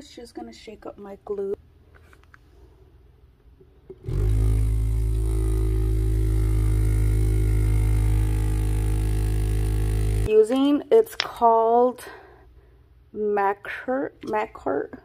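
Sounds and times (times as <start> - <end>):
electric shaker buzzing: 4.0 - 10.6.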